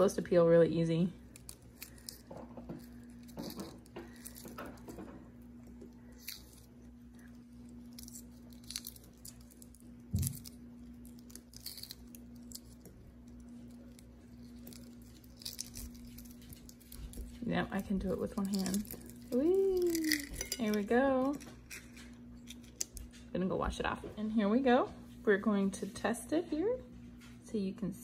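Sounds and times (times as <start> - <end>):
egg shell cracking and peeling: 1.2 - 23.2.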